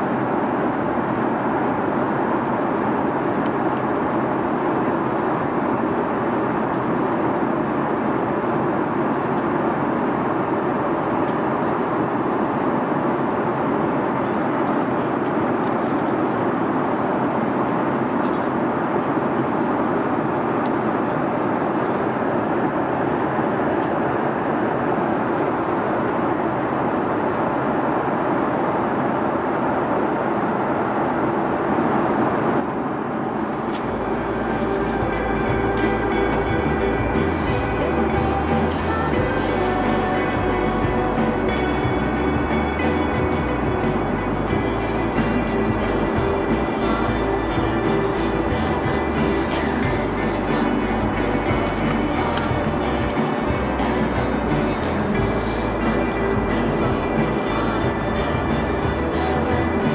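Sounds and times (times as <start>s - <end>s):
airplane cabin noise: 0.0s - 59.9s.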